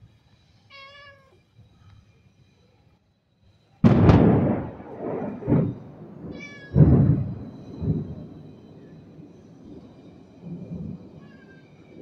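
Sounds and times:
cat meowing: 0.7s - 1.4s, 6.3s - 6.8s, 11.2s - 11.7s
thunder crack and rumble: 3.8s - 12.0s.

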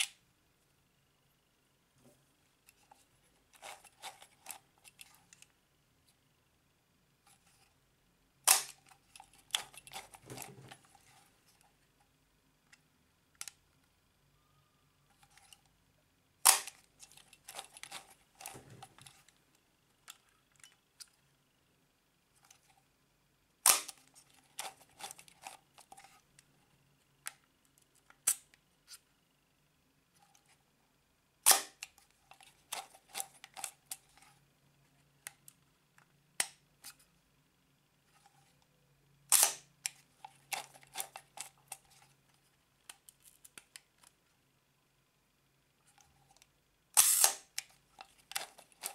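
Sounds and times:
camera shutter click: 47.0s - 47.4s
camera winding clicks: 47.0s - 47.7s.

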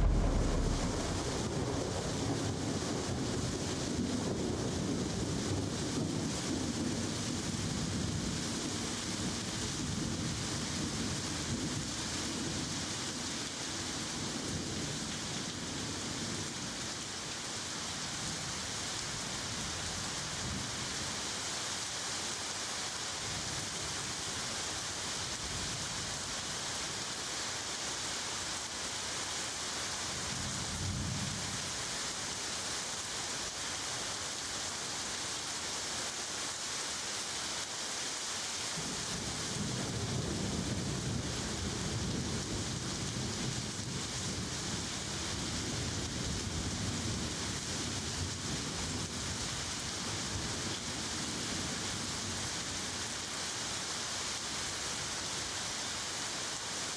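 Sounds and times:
low rumble: 0.0s - 2.6s
steady hiss: 0.0s - 3.0s.

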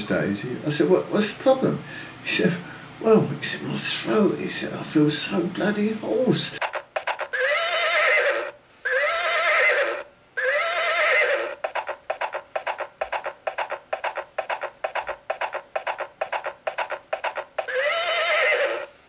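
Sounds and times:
clip-clop of hooves: 6.6s - 7.5s, 11.5s - 18.1s
horse whinnying: 6.6s - 13.0s, 16.8s - 18.9s.

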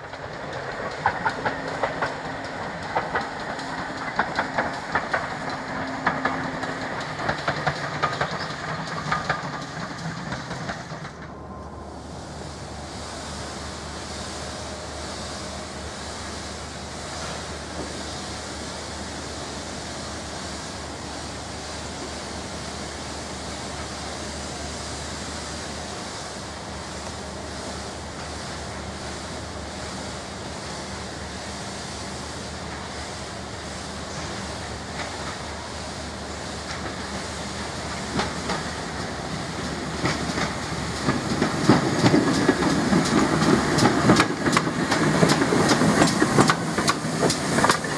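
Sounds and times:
train wheels clicking over rail joints: 0.0s - 11.4s, 25.6s - 47.9s
rushing noise with low hum: 0.0s - 47.9s
steam exhaust: 0.0s - 47.9s.

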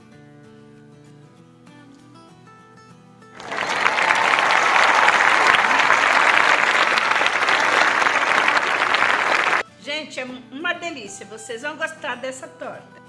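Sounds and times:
quiet acoustic guitar music: 0.0s - 3.4s
crowd applause: 3.4s - 9.6s.

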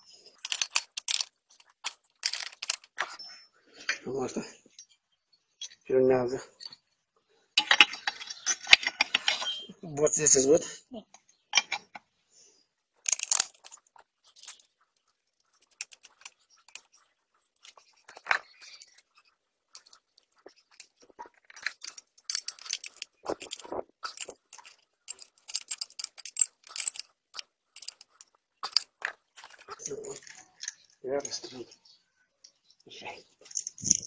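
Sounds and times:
saw chain rattling: 0.3s - 3.2s, 13.0s - 31.4s, 33.4s - 34.0s
spanners clinking on bolts: 0.4s - 3.4s, 7.6s - 9.8s, 13.0s - 14.7s, 15.5s - 17.0s, 17.6s - 31.5s.

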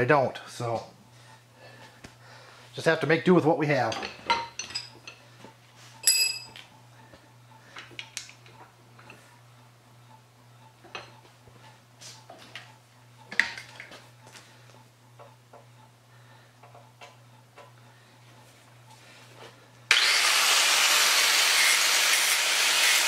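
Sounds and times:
metal tools clinking on vise: 3.9s - 5.2s, 6.0s - 6.6s
ringing metal clang: 6.0s - 6.6s.

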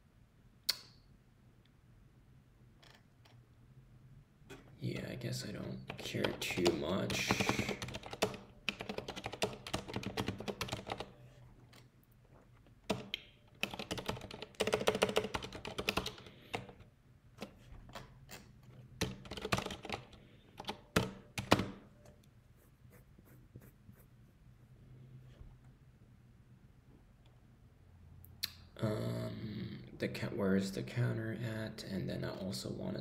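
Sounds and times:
computer keyboard typing: 5.8s - 11.2s, 12.9s - 16.8s, 19.0s - 21.8s.

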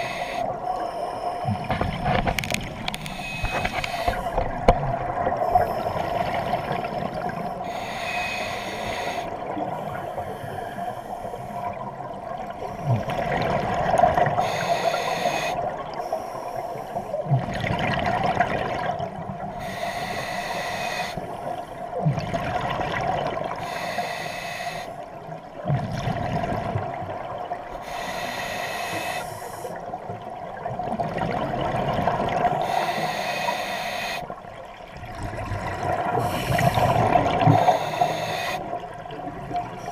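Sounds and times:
steady hum: 0.0s - 11.8s, 36.2s - 39.9s
underwater exhaled air bubbling: 0.0s - 39.9s.

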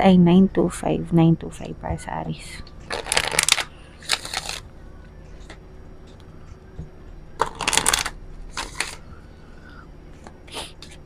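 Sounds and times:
cards shuffled by hand: 2.9s - 4.6s, 7.4s - 9.0s.

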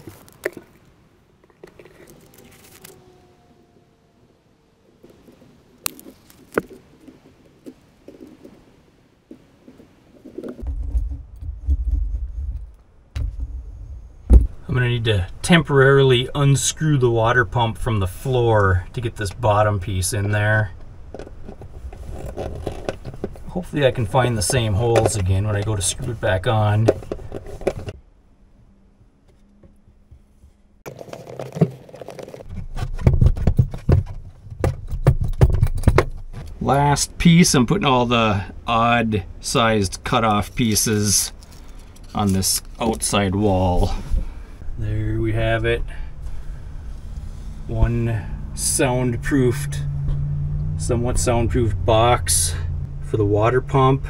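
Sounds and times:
rustling and scraping: 0.0s - 3.1s, 5.0s - 14.7s, 20.7s - 28.0s, 29.2s - 36.6s, 40.3s - 44.6s, 46.2s - 48.0s
sharp clicks and knocks: 29.2s - 36.6s
hand roller rumbling: 30.9s - 36.1s.

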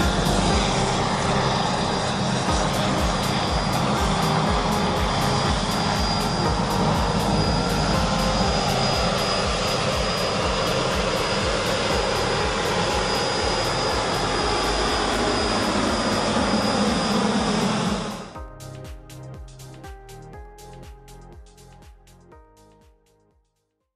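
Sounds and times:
rotor rush: 0.0s - 18.4s
turbine high whine: 0.0s - 22.3s.

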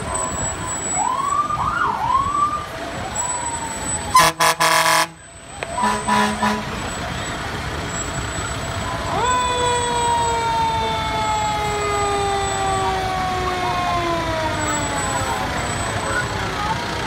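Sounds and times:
fire truck siren: 0.0s - 17.0s
truck engine rumble: 0.0s - 17.0s.

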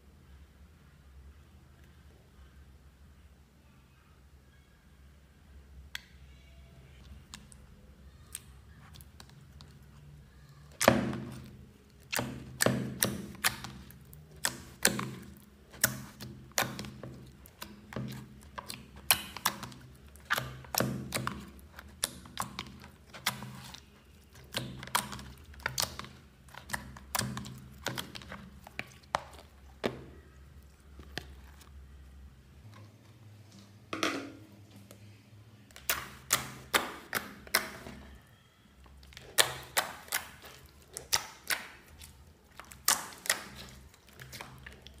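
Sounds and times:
slime popping: 10.8s - 30.4s, 39.0s - 45.0s.

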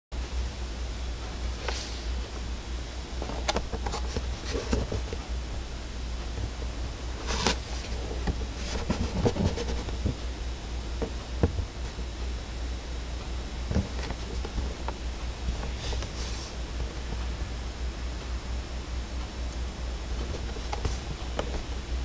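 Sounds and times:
steady low hum: 0.1s - 22.0s
cardboard box handled: 6.5s - 10.2s, 13.7s - 16.6s.

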